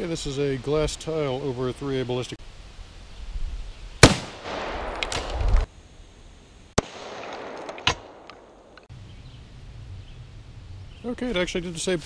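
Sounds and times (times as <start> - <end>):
rifle shots cracking: 4.0 - 5.7, 6.8 - 8.9.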